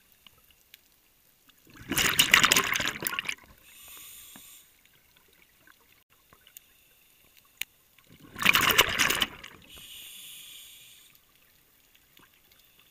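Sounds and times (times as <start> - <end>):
exhaled bubbles bursting: 1.7 - 3.6, 8.1 - 9.7
regulator inhalation hiss: 3.6 - 4.8, 9.6 - 11.3.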